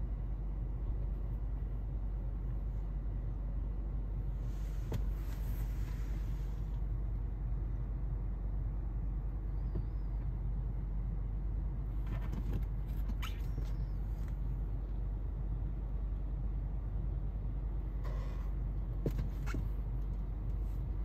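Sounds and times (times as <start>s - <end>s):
car cabin rumble: 0.0s - 21.0s.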